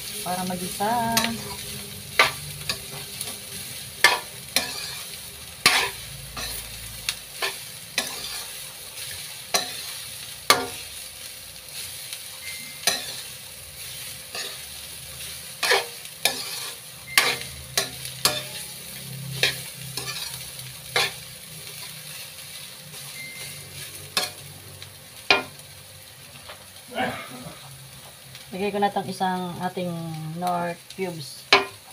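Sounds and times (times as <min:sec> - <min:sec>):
metal spoon scraping wok: 0:00.0 - 0:11.0, 0:11.7 - 0:24.5
food sizzling: 0:00.0 - 0:31.9.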